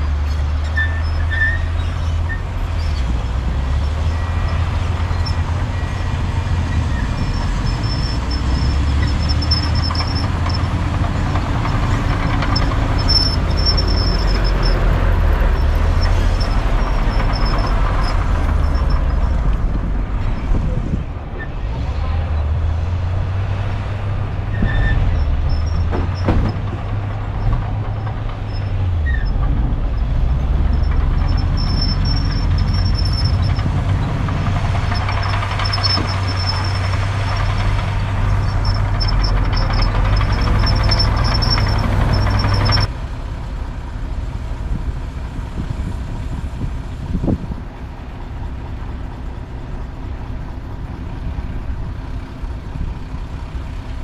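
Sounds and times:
high squeals: 0.0s - 19.6s, 24.5s - 42.9s
heavy machinery diesel engines: 0.0s - 54.0s.

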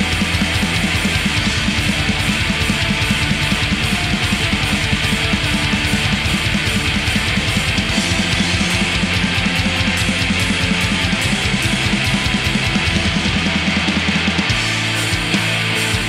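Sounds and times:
distorted guitars: 0.0s - 16.0s
fast dense drumming: 0.0s - 16.0s.

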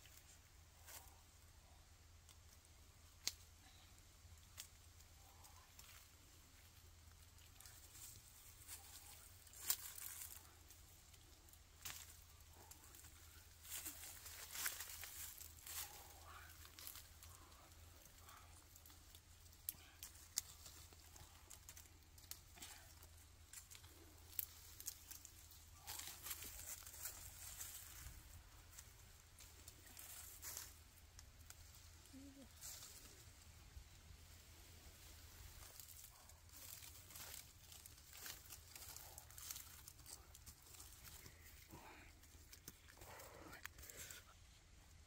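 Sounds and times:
rustling and tearing: 35.4s - 44.2s.

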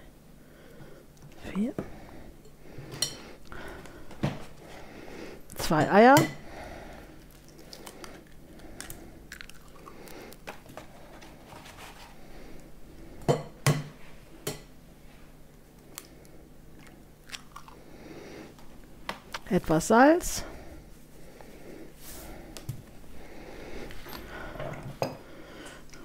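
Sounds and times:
eggshells crackling: 7.2s - 10.7s.

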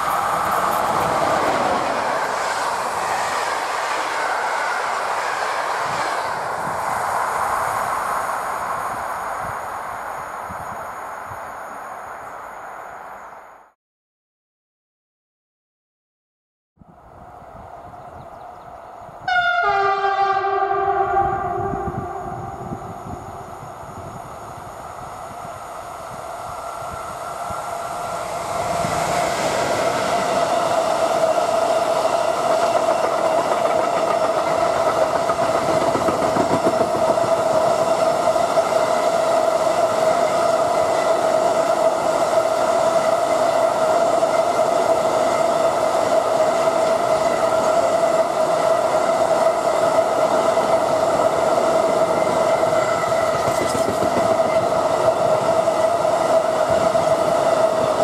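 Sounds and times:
freight train rolling rumble: 0.0s - 11.5s, 17.0s - 58.0s
wheels whining on rail: 0.0s - 13.7s, 16.8s - 58.0s.

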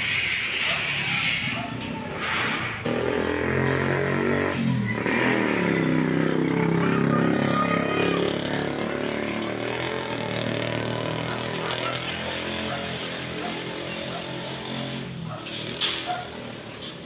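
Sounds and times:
motorcycle passing: 0.0s - 17.0s
street traffic: 0.0s - 17.0s.

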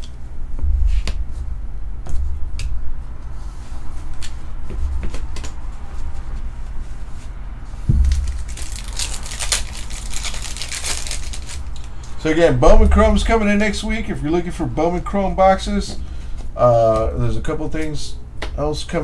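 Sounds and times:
low thump: 7.9s - 8.8s
card pack wrapper crinkling: 7.9s - 12.2s.

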